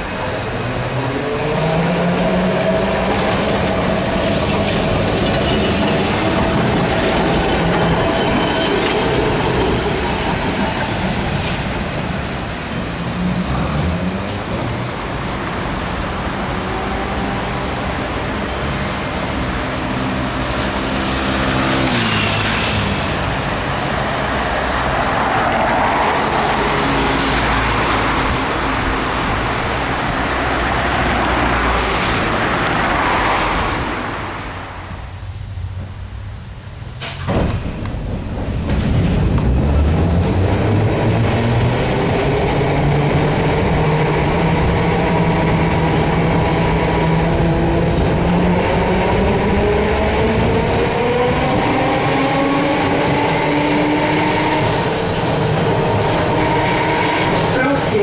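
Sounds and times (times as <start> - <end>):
tram running noise: 0.0 - 58.0
vehicles passing: 0.0 - 58.0
tram motor whine: 38.4 - 58.0.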